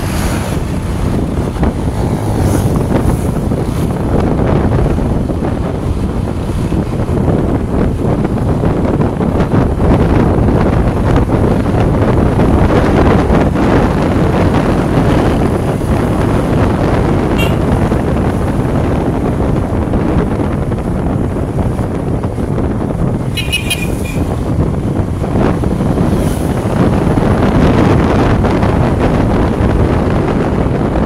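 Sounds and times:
heavy wind rush on microphone: 0.0 - 31.0
road and vehicle noise: 0.0 - 31.0
short high beep: 17.4 - 17.7.

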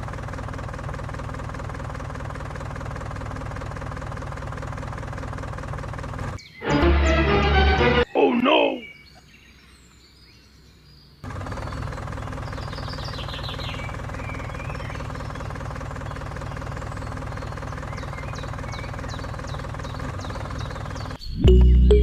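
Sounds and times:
tractor engine running: 0.0 - 8.7, 11.2 - 22.0.

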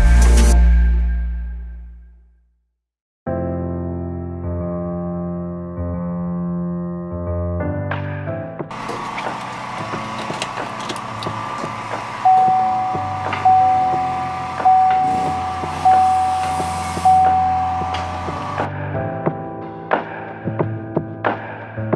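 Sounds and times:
steady hum: 8.7 - 18.7
light clicks of dash parts: 8.8 - 11.8
car dash warning chime: 11.1 - 18.7.

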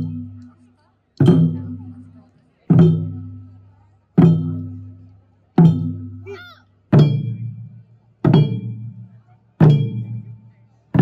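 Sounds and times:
deep barrel drum strikes: 1.2 - 1.9, 2.7 - 3.3, 4.2 - 4.8, 5.6 - 6.2, 6.9 - 10.3.

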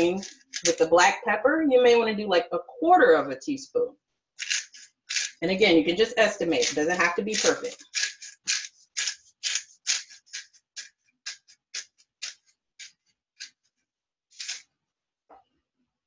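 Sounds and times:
pepper grinder grinding: 0.0 - 0.8, 4.4 - 13.6, 14.4 - 14.6.

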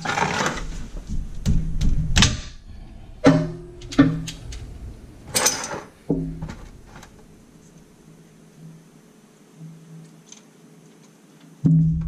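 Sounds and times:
scraping drags: 2.6 - 8.9.

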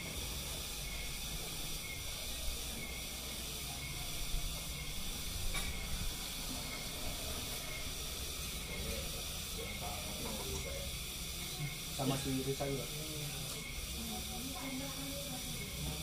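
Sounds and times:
steady hiss: 0.0 - 16.0.

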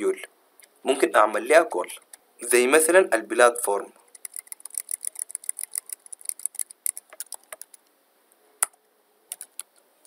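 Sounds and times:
computer keyboard typing: 4.1 - 7.9, 8.6 - 9.7.

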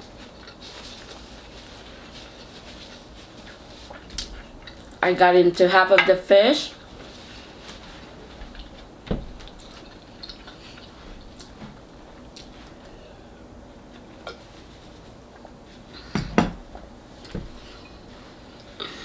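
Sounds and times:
paper napkin rustling: 0.2 - 4.6, 6.8 - 10.0.

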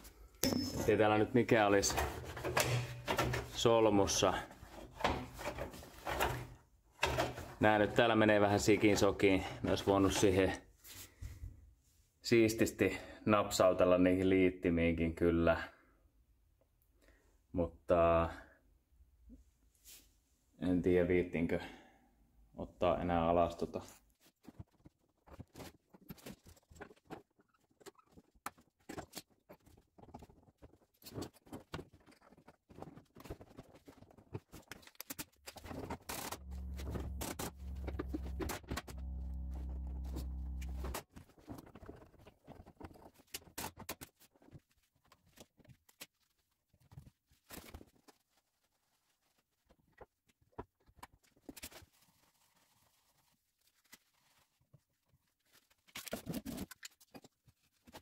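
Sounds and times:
tools and parts clicking: 0.4 - 1.0, 1.9 - 3.6
steady low hum: 36.3 - 41.0.

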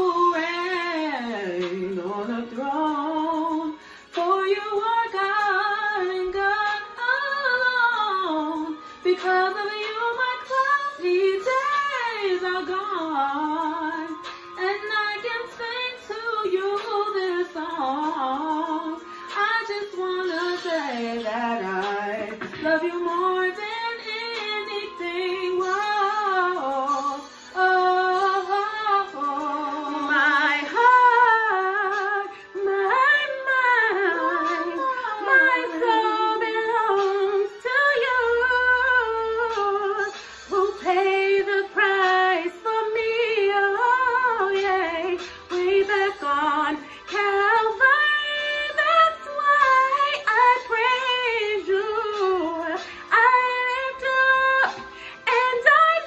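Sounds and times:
women singing together: 27.6 - 56.0.

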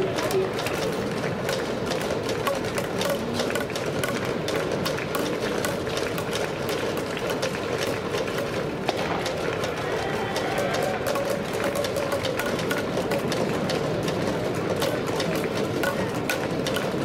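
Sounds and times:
crowd murmur: 0.0 - 17.0
people clapping: 0.0 - 17.0.

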